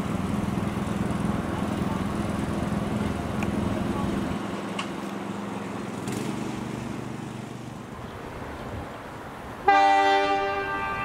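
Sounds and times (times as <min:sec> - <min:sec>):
diesel locomotive engine hum: 0:00.0 - 0:11.0
locomotive horn blast: 0:09.6 - 0:11.0.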